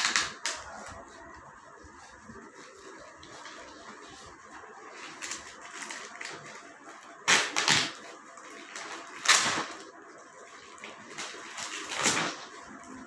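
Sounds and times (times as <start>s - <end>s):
plastic bag ripping: 0.0s - 1.1s, 4.9s - 10.0s, 10.6s - 13.0s
plastic crinkling and rustling: 0.0s - 13.0s.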